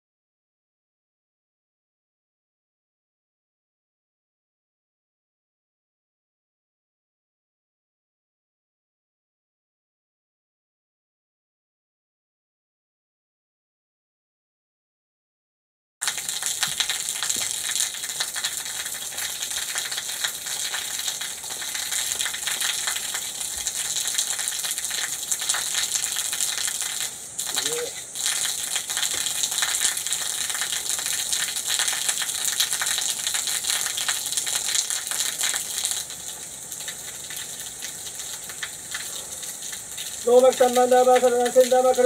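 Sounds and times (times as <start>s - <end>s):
waterfall splashing onto rocks: 16.0s - 42.0s.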